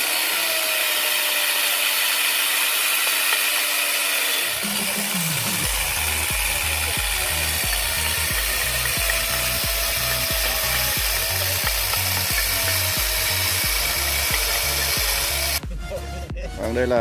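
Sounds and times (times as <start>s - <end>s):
power tool hissing: 0.0s - 15.6s
background music with beat: 4.6s - 17.0s.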